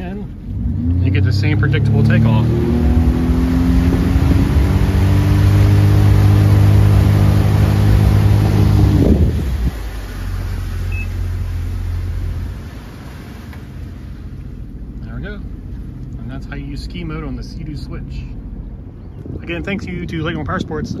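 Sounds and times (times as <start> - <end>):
water rushing: 0.0 - 18.6
boat engine running: 0.0 - 21.0
short electronic beep: 10.9 - 11.2.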